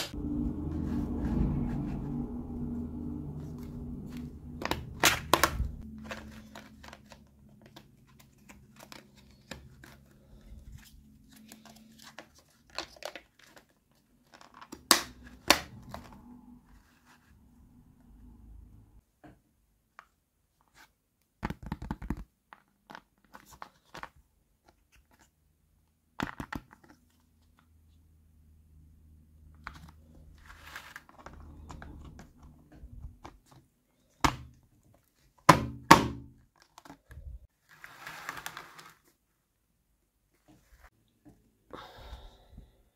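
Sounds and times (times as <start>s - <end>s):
plastic scraping and rubbing: 29.6s - 35.4s, 36.6s - 39.2s.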